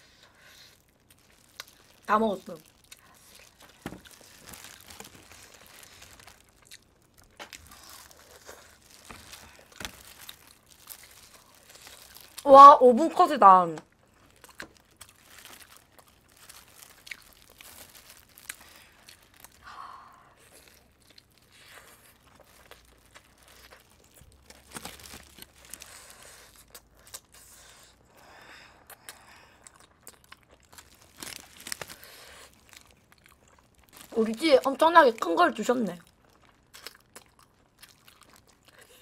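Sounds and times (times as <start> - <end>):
plastic gloves and foil crinkling: 0.0 - 28.0, 30.0 - 39.0
meat tearing by hand: 0.4 - 12.4, 20.4 - 27.6, 29.9 - 33.8
chewing: 13.9 - 19.6, 28.7 - 34.2, 36.0 - 39.0.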